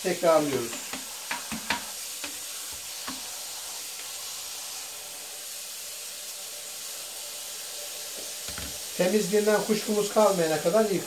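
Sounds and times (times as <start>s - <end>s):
tap water splashing into sink: 0.4s - 4.2s, 8.1s - 9.0s.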